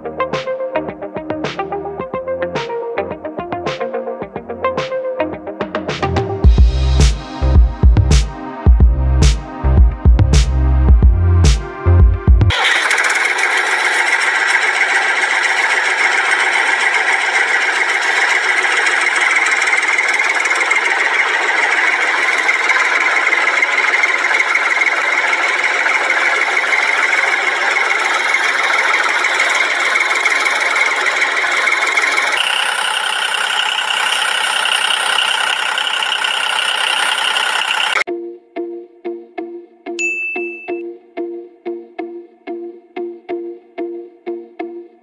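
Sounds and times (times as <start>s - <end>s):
small motor droning: 12.5s - 38.0s.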